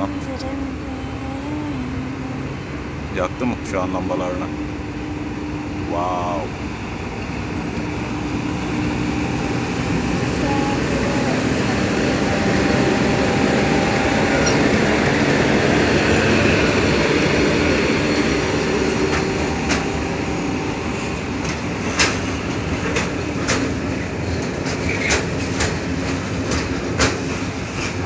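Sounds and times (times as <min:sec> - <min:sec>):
train rumbling past: 0:00.0 - 0:28.0
wheels clicking over rail joints: 0:18.9 - 0:20.4, 0:21.0 - 0:28.0.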